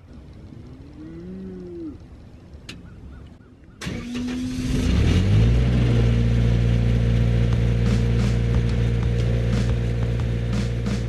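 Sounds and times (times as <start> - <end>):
welder engine starting and running: 3.8 - 11.0.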